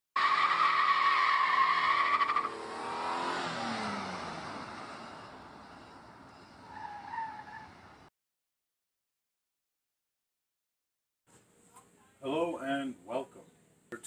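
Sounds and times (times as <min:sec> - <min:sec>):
car engine: 0:00.2 - 0:08.1
car tyres squealing: 0:00.2 - 0:08.1.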